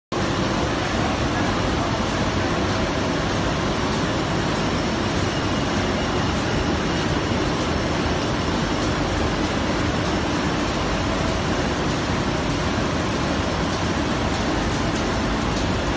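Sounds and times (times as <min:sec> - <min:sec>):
laminating machine running: 0:00.2 - 0:15.9.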